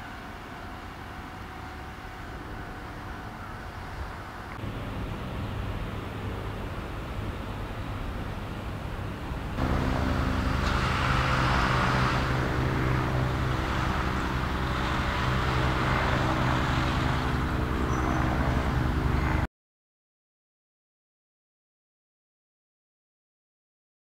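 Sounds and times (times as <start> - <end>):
helicopter flying overhead: 9.6 - 19.5.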